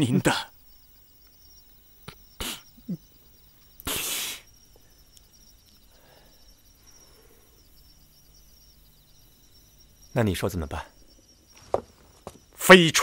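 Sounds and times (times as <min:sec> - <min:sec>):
crickets chirring: 0:00.0 - 0:13.0
breathy exhales: 0:03.8 - 0:04.5, 0:05.9 - 0:07.6.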